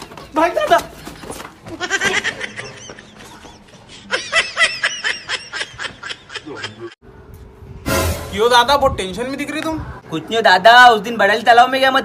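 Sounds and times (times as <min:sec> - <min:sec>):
person laughing: 0:00.8 - 0:07.0.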